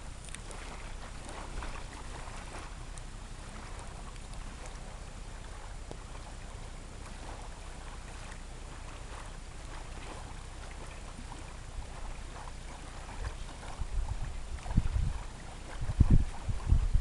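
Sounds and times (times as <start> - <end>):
waves lapping on shingle: 0.0 - 17.0
wind buffeting microphone: 9.0 - 17.0.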